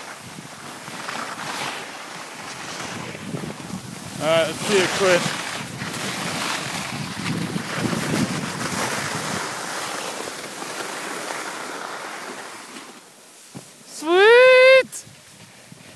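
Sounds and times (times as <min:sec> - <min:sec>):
snowboard scraping packed snow: 0:00.0 - 0:15.9
wind buffeting microphone: 0:02.5 - 0:09.8.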